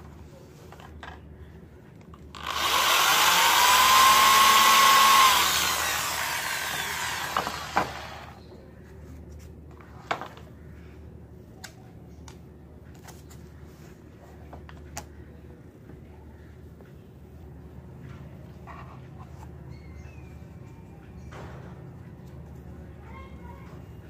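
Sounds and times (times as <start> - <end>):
electric drill boring wood: 2.4 - 8.4.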